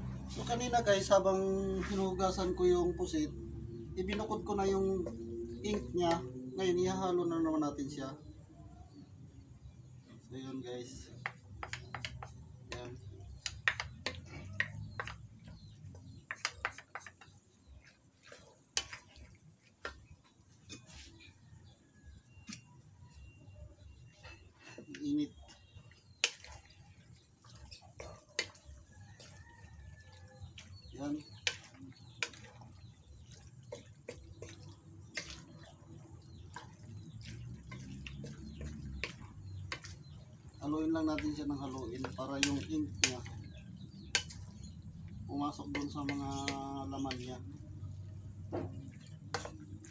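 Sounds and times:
utensils knocking on metal wok: 11.2 - 15.3, 16.2 - 17.3, 31.4 - 32.4, 37.7 - 40.0, 42.0 - 44.6.

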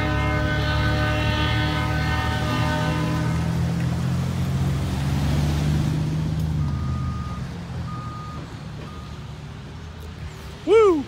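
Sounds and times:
heavy engine droning: 0.0 - 9.8
short electronic beeps: 6.7 - 9.1.

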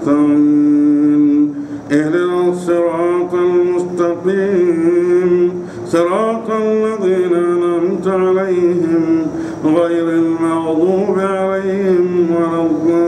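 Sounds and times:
brief breaths: 1.5 - 1.9, 5.6 - 5.9, 9.3 - 9.6.

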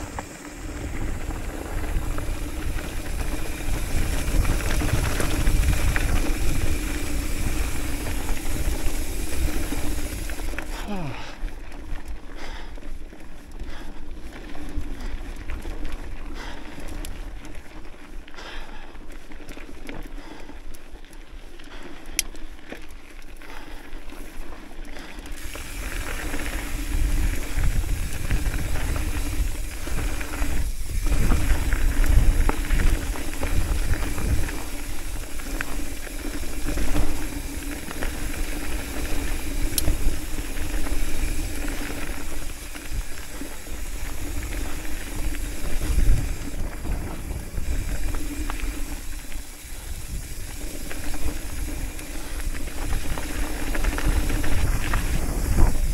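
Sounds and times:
wind rumbling on microphone: 0.0 - 12.6, 25.0 - 55.9
bike tyres crunching on gravel: 0.0 - 55.9.

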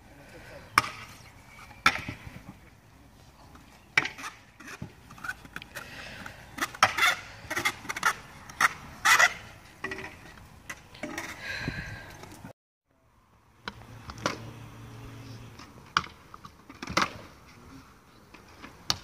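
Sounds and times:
scooter decks clacking on concrete: 3.9 - 11.4
scooter wheels scraping: 4.0 - 12.5.

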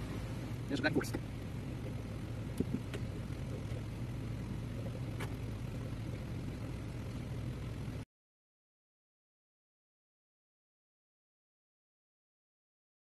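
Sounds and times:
box fan humming: 0.0 - 8.1.

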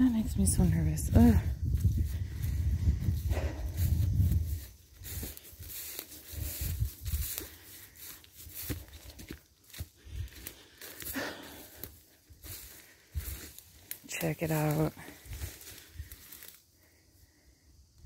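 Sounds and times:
low rumble on microphone: 0.0 - 7.4
footsteps through tall grass: 0.0 - 16.6.

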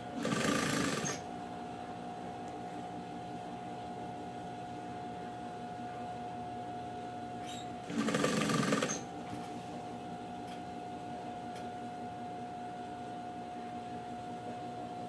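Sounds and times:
faint steady hum: 0.0 - 15.0
sewing machine stitching: 0.2 - 1.2, 7.9 - 9.0.

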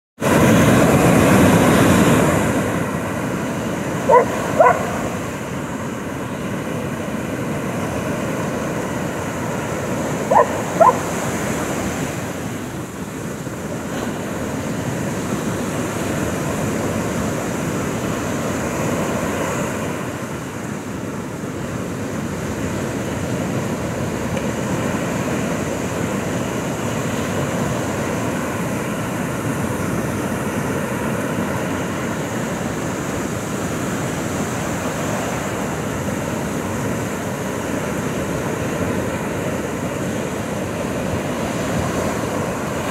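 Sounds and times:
ocean surf washing onto beach: 0.2 - 42.9
dog barking: 4.0 - 5.2, 10.3 - 11.2.

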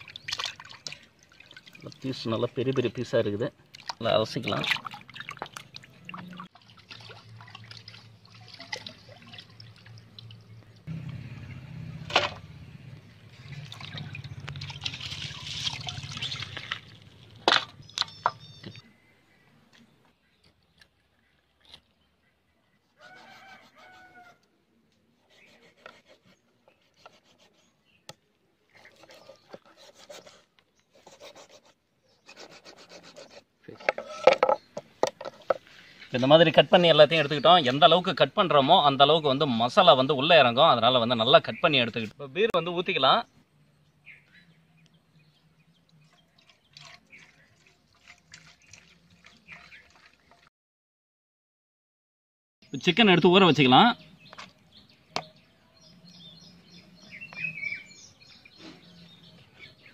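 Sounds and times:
water splashing: 0.0 - 2.9, 3.6 - 10.9, 13.2 - 18.5, 45.9 - 50.5
hands rubbing chicken in water: 46.0 - 50.5.

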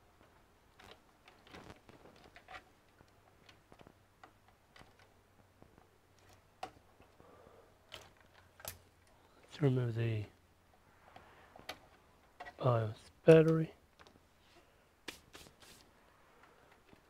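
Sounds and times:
clicks and taps of handling cables: 0.2 - 7.2.

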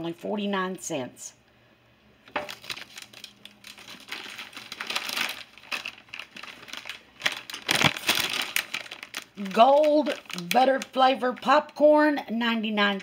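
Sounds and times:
plastic bags crinkling: 2.3 - 11.7.

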